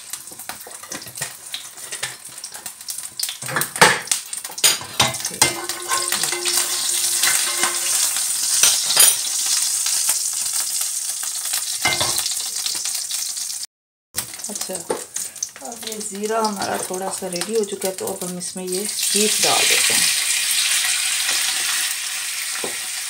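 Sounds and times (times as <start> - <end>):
seeds sizzling in hot oil: 0.0 - 13.6, 14.2 - 23.0
spoon scraping and knocking pan: 3.4 - 9.3, 11.8 - 12.3, 22.6 - 22.9.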